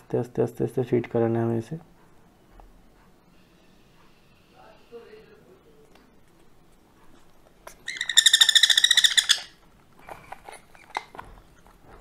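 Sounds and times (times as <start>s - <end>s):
parrot chick begging call: 7.8s - 9.6s.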